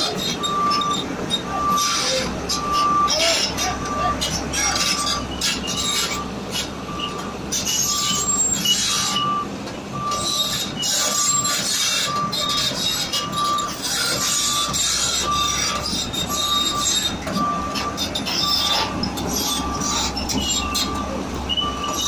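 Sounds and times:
excavator tracks squealing and grinding: 0.0s - 22.0s
short beeps: 0.5s - 10.5s, 14.5s - 22.0s.

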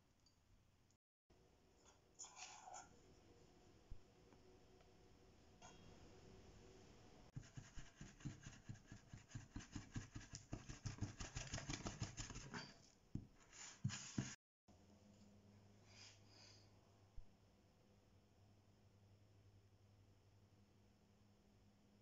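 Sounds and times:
hand beating wet dough: 7.4s - 12.5s.

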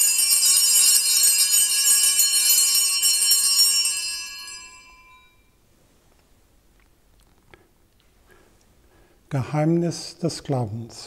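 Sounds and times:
altar bells ringing: 0.0s - 5.6s.

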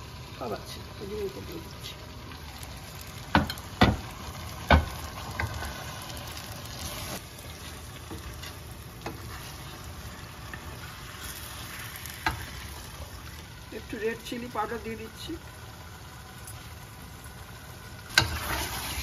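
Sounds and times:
food sizzling in oil: 0.0s - 19.0s
spoon knocking against pan: 3.3s - 4.0s, 4.7s - 5.6s.

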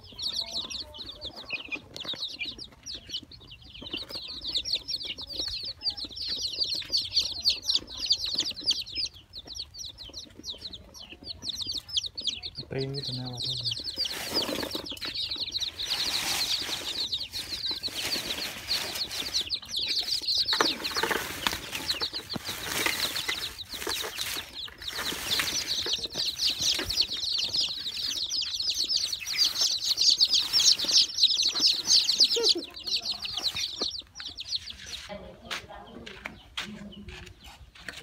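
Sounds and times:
chicks peeping: 0.0s - 38.0s.

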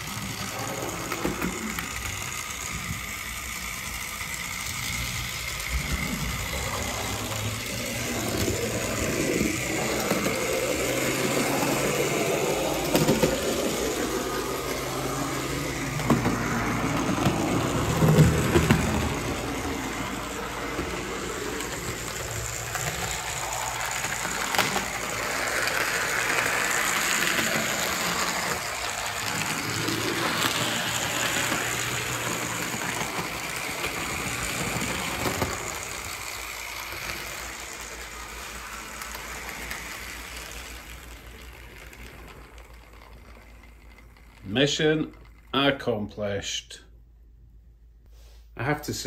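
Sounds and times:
wheels rattling on track: 0.0s - 45.5s
model train motor whirring: 0.0s - 45.8s.

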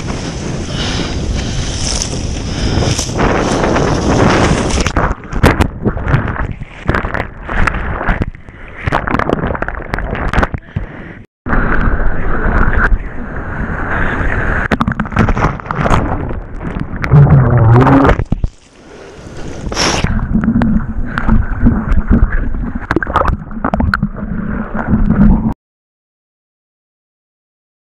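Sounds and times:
muffled underwater rumbling and gurgling: 0.0s - 25.6s
splashing and rushing water: 14.2s - 25.6s.

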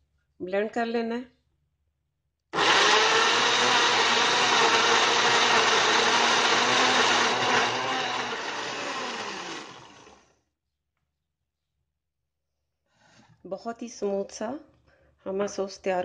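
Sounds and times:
electric blender running: 2.6s - 10.4s.

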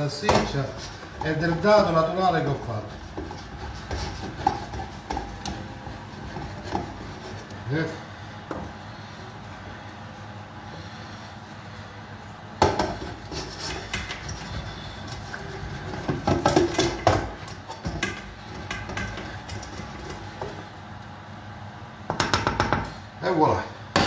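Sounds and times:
wooden spoon scraping metal pan: 0.5s - 7.5s, 12.9s - 20.1s.

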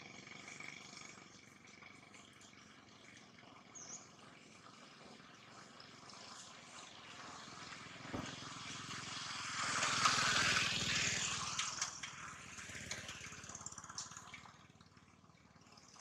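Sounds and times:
vehicle passing on road: 4.2s - 15.8s.

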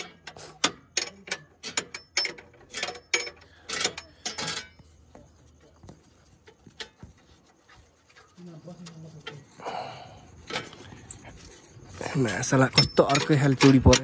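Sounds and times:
spanner clicking on bolt: 0.0s - 4.8s, 12.3s - 14.0s.

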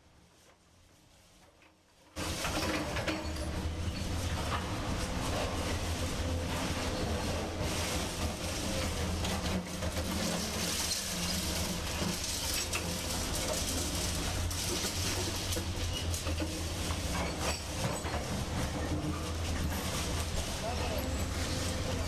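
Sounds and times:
excavator diesel engine running: 2.2s - 22.0s
knocks and clatter: 8.2s - 20.6s.

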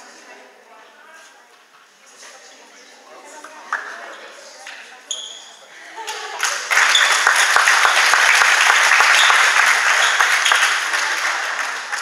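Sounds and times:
spectators clapping: 6.0s - 12.0s.

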